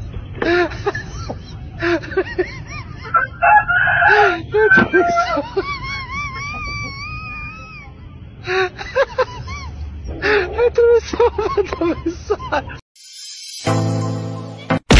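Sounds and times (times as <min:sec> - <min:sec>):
rooster crowing: 0:03.1 - 0:05.5.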